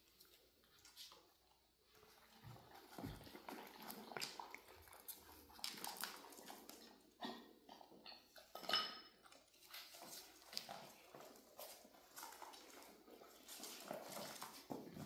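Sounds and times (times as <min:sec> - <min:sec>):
puppy claws clicking on floor: 0:02.9 - 0:07.0, 0:09.2 - 0:15.0.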